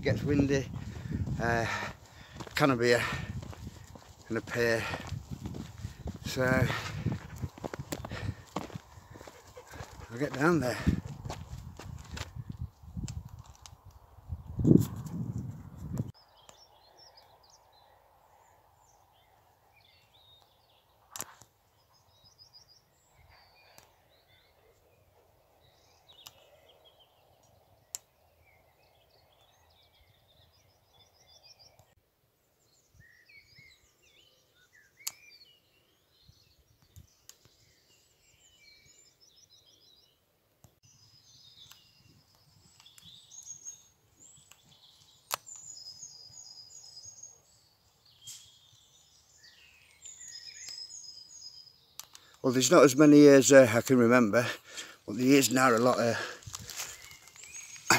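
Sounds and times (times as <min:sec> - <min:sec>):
songbirds singing and chirping: 0:00.0 - 0:57.9
sharp clicks: 0:21.1 - 0:21.5, 0:52.0 - 0:52.4.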